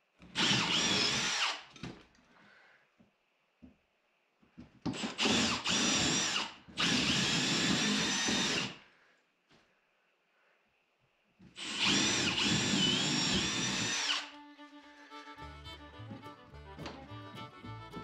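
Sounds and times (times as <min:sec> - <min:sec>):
power drill cutting wood: 0:00.4 - 0:01.7, 0:05.0 - 0:08.8, 0:11.6 - 0:14.4.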